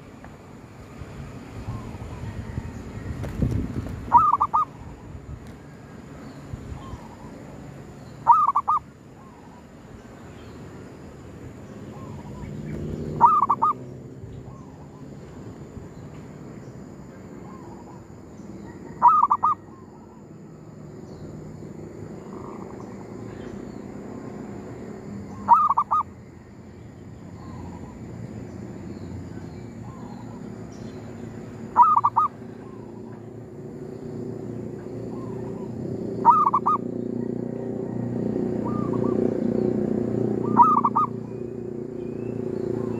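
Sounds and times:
dove cooing: 4.1s - 4.8s, 8.2s - 8.8s, 13.2s - 13.8s, 18.9s - 20.1s, 25.4s - 26.1s, 31.8s - 33.0s, 35.1s - 39.2s, 40.4s - 41.2s
faint dove calls: 4.1s - 4.8s, 8.2s - 9.5s, 13.2s - 13.8s, 18.8s - 20.2s, 25.4s - 26.1s, 31.7s - 33.0s, 35.1s - 36.8s, 40.4s - 41.1s.

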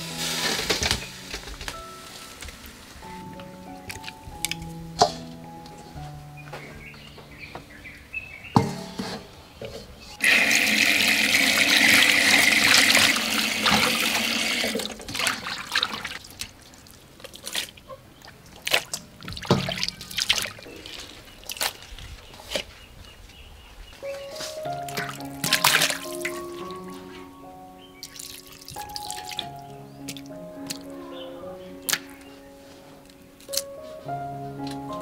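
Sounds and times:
tap water gushing into steel basin: 10.2s - 16.2s
splashes drips and knocks on steel: 14.7s - 21.8s
faucet trickle: 28.0s - 30.2s.

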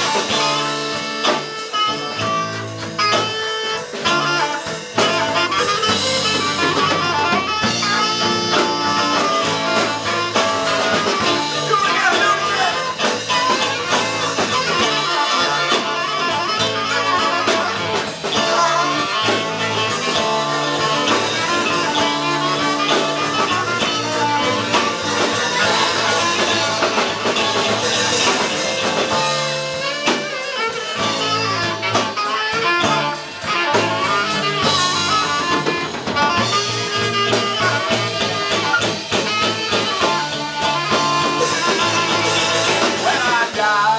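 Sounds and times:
drum kit: 0.0s - 43.9s
electric guitar: 0.0s - 43.9s
saxophone: 0.0s - 43.9s.

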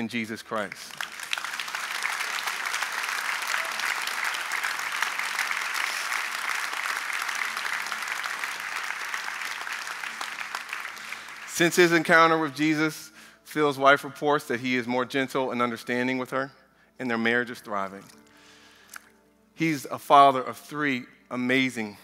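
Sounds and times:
congregation applauding: 0.6s - 12.7s.

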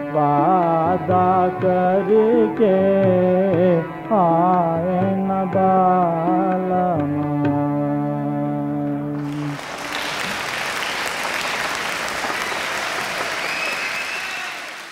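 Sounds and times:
audience applauding: 9.2s - 14.9s.

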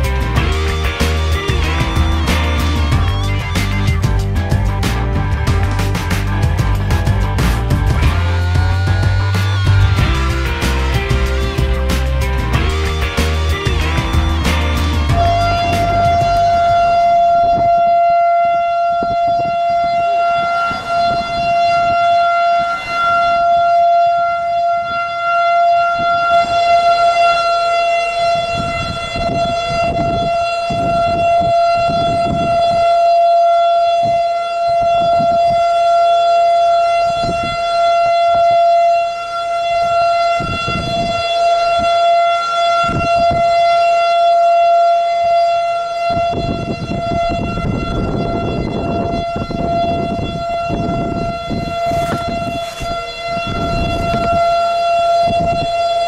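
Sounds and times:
low rushes of noise: 0.0s - 18.1s
steady warning siren: 0.0s - 56.0s.

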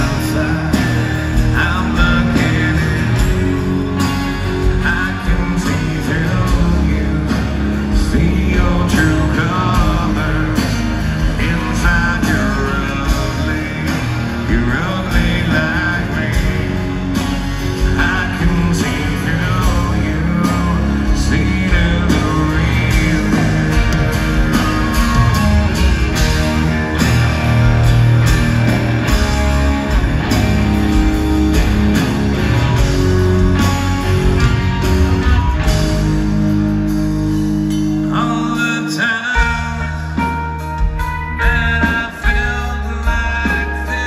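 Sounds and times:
person singing: 0.0s - 27.1s, 38.0s - 44.0s
live rock band playing: 0.0s - 44.0s.

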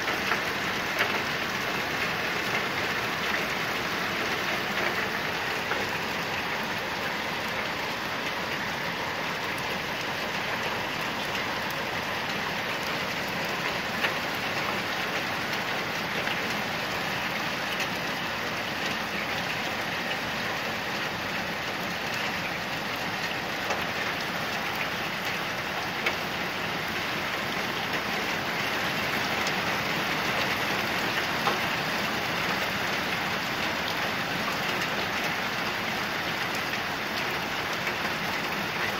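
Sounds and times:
steady rain hiss: 0.0s - 38.9s.

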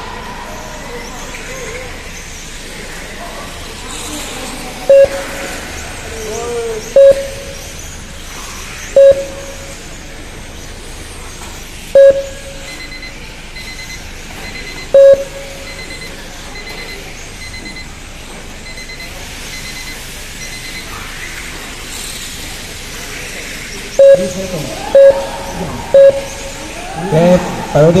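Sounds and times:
loud short timer beeps: 4.9s - 5.5s, 7.0s - 7.7s, 9.0s - 9.8s, 12.0s - 13.1s, 14.7s - 16.2s, 24.0s - 26.6s
quieter higher beeps: 4.9s - 5.6s, 7.0s - 7.7s, 9.0s - 9.8s, 12.0s - 13.1s, 14.9s - 16.1s, 24.0s - 26.7s.

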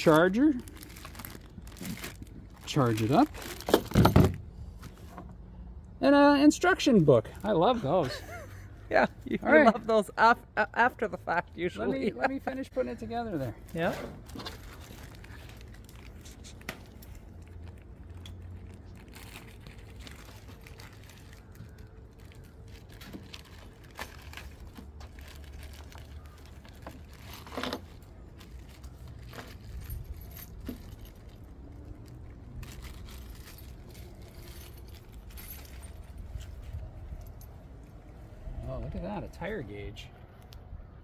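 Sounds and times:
metal tools clinking in plastic packets: 0.0s - 4.4s, 16.8s - 36.5s.

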